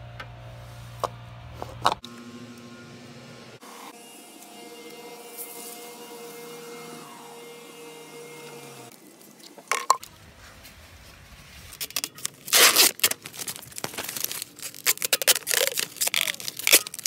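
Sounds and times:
plastic bag crinkling: 0:08.9 - 0:17.0.

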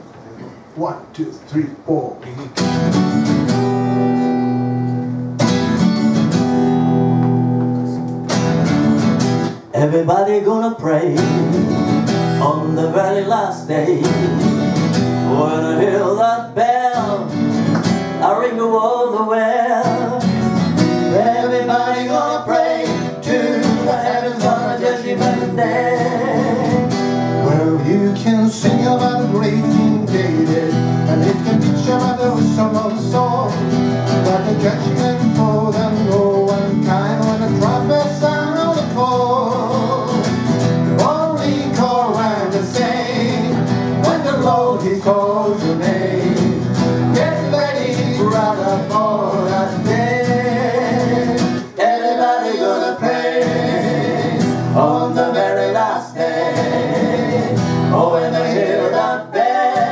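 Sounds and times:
acoustic guitars strumming: 0:02.4 - 0:59.9
person singing: 0:21.1 - 0:33.6.

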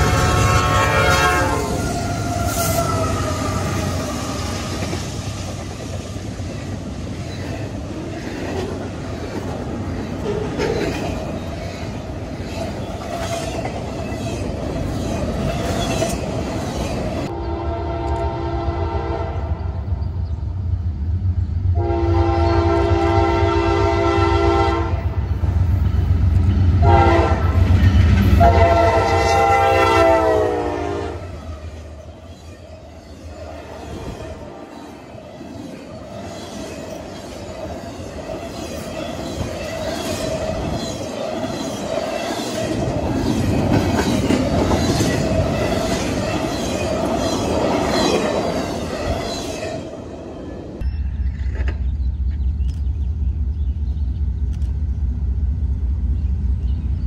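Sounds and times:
locomotive horn blasts: 0:00.0 - 0:02.9, 0:17.3 - 0:19.6, 0:21.8 - 0:25.2, 0:26.8 - 0:27.7, 0:28.3 - 0:31.4
freight train rumbling over rails: 0:00.0 - 0:57.0.

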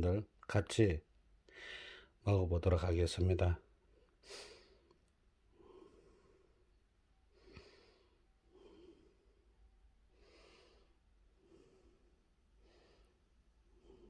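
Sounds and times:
soft breaths close to microphone: 0:03.8 - 0:14.0.

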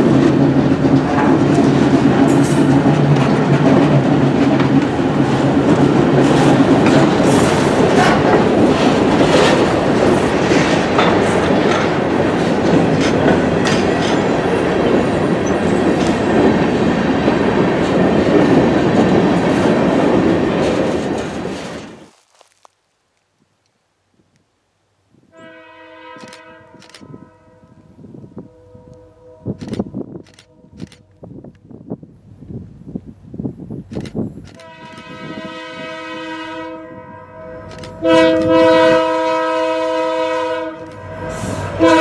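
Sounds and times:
train wheels clicking over rail joints: 0:00.0 - 0:22.1
diesel locomotive engine droning: 0:25.3 - 0:42.0.

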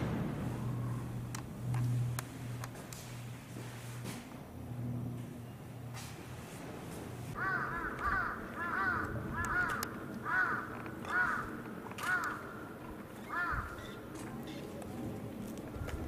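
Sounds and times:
crow cawing: 0:07.4 - 0:13.8.

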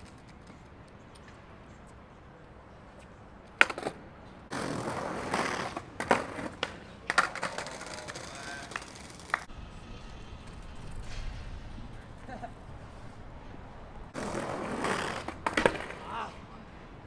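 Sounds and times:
skateboard wheels rolling on stone: 0:00.0 - 0:00.8, 0:03.5 - 0:09.6, 0:13.9 - 0:16.2
skateboard clacking: 0:03.5 - 0:09.5, 0:14.1 - 0:16.2.

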